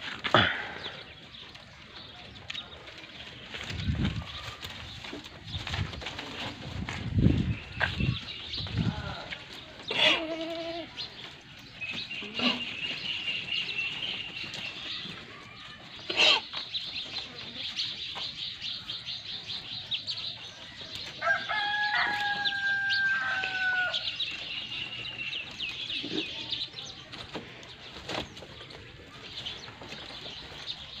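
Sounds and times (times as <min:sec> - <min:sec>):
small birds chirping: 0:00.0 - 0:31.0
goat bleating: 0:09.9 - 0:10.9
rooster crowing: 0:21.2 - 0:24.2.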